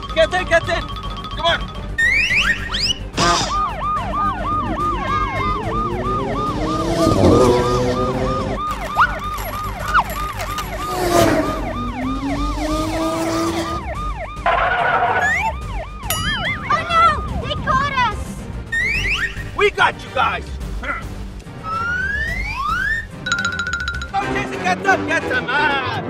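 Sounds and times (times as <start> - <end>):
police siren yelping: 2.0 - 19.6, 21.5 - 23.5
car passing: 3.1 - 15.5.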